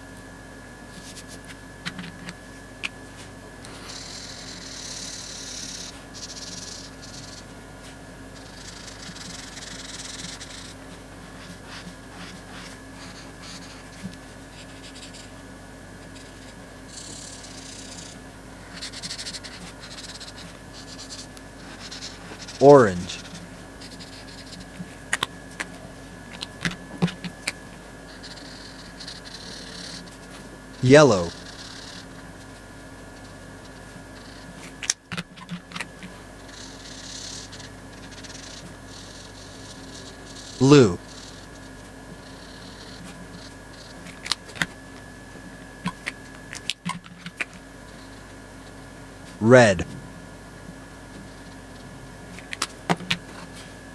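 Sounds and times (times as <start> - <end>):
faint steady hum: 0.0 - 53.9
marker scratching on paper: 8.4 - 15.3, 16.1 - 24.7, 36.5 - 41.6.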